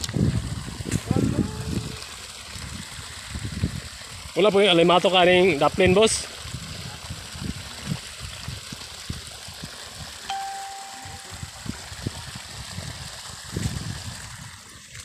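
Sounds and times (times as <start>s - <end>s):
short ringing tone: 10.3s - 11.5s.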